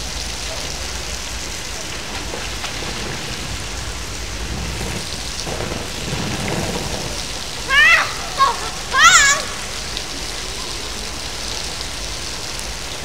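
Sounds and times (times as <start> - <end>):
swimmer splashing: 0.0 - 13.0
water stream pouring into pool: 0.0 - 13.0.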